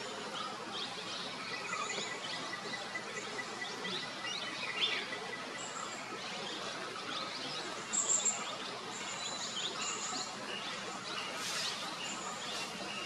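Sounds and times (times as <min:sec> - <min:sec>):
birds chirping: 0:00.0 - 0:13.0
steady hiss: 0:07.9 - 0:13.0.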